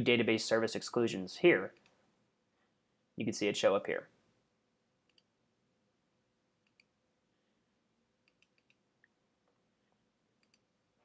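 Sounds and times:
computer mouse clicks: 5.0s - 5.3s, 6.6s - 6.9s, 8.2s - 8.8s, 10.4s - 10.7s.

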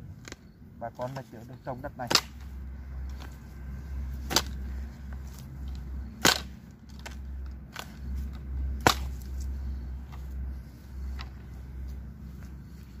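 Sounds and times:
hand hoe chopping into dry soil: 0.3s - 2.5s, 4.2s - 10.2s.

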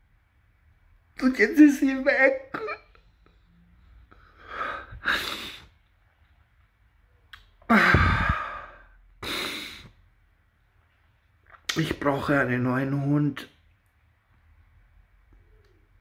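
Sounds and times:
man crying: 2.2s - 3.0s
heavy breathing: 4.0s - 5.8s, 7.7s - 10.0s.

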